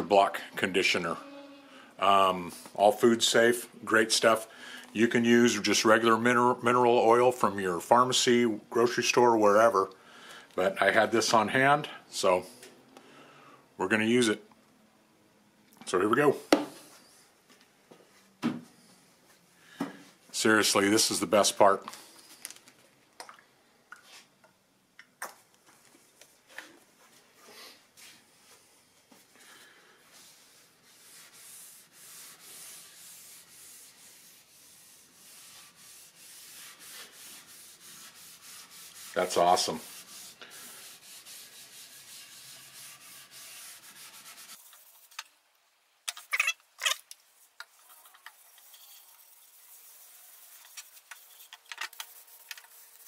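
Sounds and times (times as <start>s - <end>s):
cloth rubbing on wooden board: 30.1s - 45.2s.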